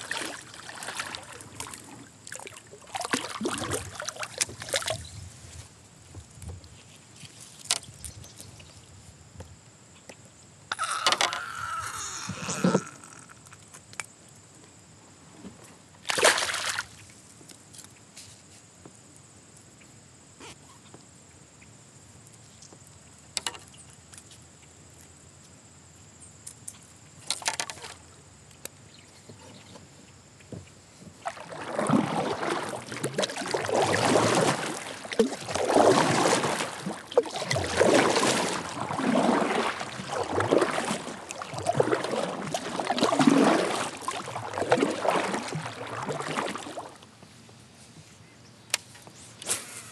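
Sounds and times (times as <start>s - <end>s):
fish splashing into water: 0.0s - 5.0s, 16.1s - 17.0s, 31.2s - 47.0s
kayak paddle stroking water: 0.0s - 8.0s, 27.2s - 28.1s, 29.3s - 47.2s.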